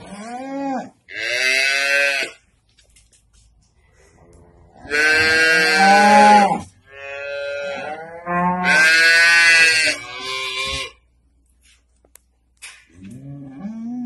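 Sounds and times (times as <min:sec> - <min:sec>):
cattle mooing: 0:04.7 - 0:11.0.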